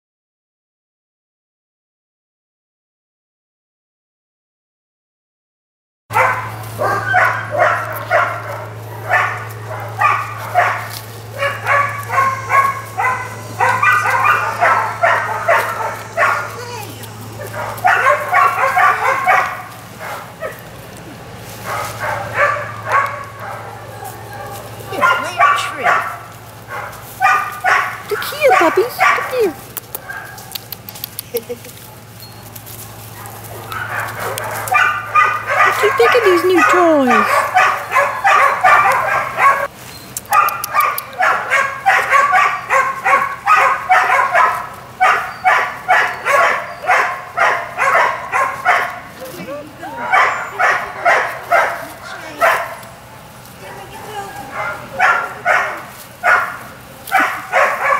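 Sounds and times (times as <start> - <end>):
puppies yipping and barking: 6.1 - 57.9
puppy whining yip: 27.2 - 30.4, 33.6 - 48.9.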